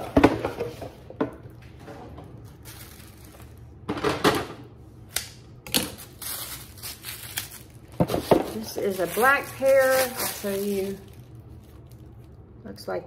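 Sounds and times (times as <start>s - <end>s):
rustling: 6.0s - 12.2s.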